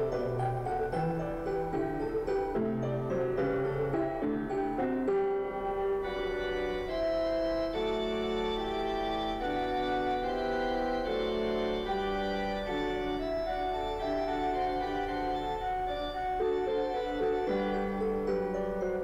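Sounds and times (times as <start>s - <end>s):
organ-like keyboard music: 0.0s - 19.0s.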